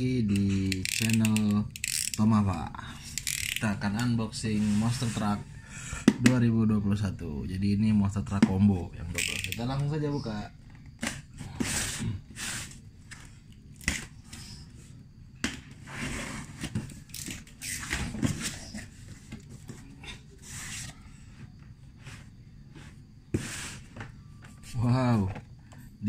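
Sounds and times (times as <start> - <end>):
cardboard flaps scraping and rustling: 15.6 - 21.0.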